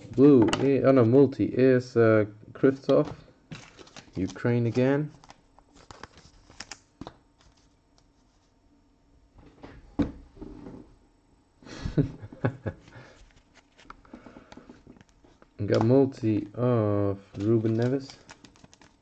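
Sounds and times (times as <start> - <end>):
trading cards clicking and sliding: 13.3 - 16.4, 17.4 - 19.0.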